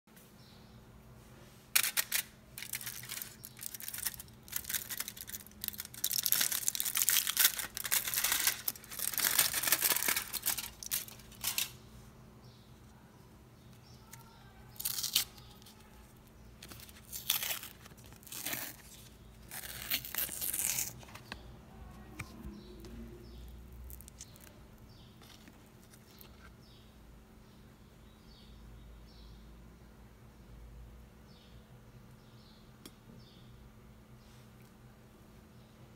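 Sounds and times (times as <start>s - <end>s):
aluminium foil crinkling: 1.7s - 11.8s, 14.0s - 22.4s, 23.3s - 26.5s
paper tearing and crinkling: 1.8s - 11.7s, 14.8s - 15.9s, 16.6s - 21.4s.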